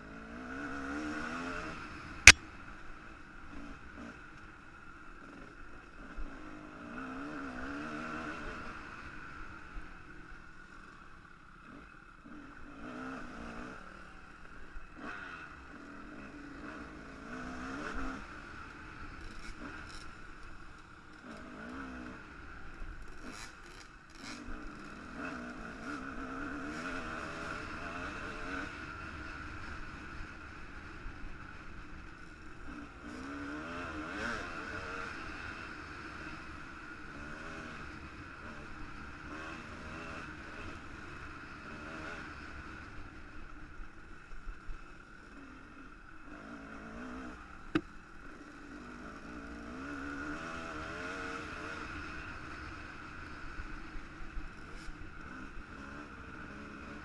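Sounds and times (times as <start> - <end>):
dirt bike engine revving: 46.3 - 53.5.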